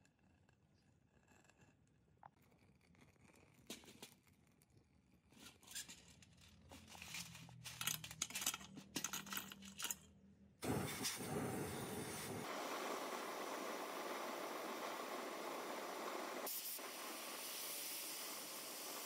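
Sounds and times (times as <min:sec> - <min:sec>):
parts clicking and clattering: 0:05.4 - 0:10.2
steady hissing: 0:10.6 - 0:19.0.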